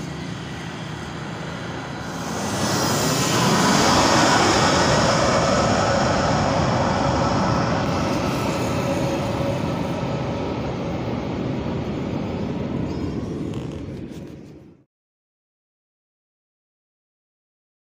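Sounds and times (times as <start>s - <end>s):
jet engines passing overhead: 0.0s - 14.9s.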